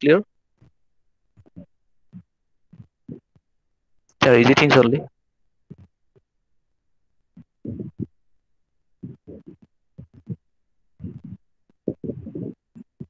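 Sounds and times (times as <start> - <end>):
muffled speech over call: 4.2 - 5.1.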